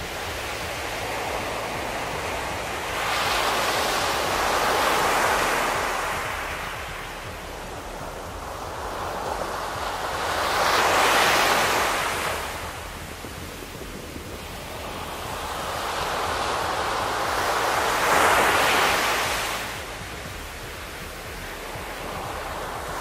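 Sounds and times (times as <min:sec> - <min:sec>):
small waves breaking on beach: 0:00.0 - 0:23.0.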